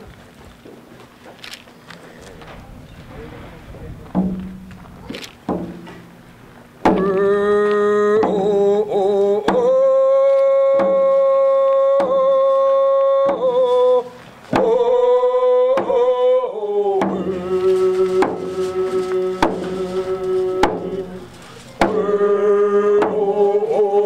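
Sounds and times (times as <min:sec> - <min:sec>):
person singing long notes: 0:06.9 - 0:24.0
hand drums beating: 0:17.0 - 0:22.3.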